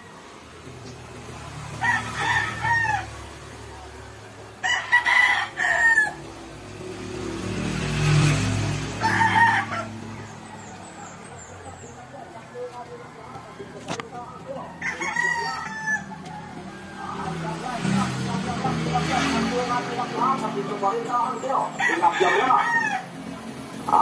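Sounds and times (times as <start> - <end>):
rooster crowing: 1.7 - 3.4, 4.6 - 6.4, 8.9 - 11.1, 14.4 - 17.8, 21.6 - 23.4.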